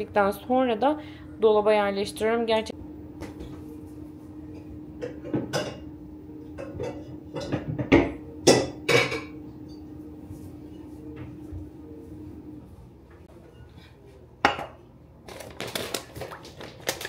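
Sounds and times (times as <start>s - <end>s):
steady low hum: 0.0s - 15.2s
pots and dishes clinking: 4.6s - 5.9s, 6.5s - 9.9s.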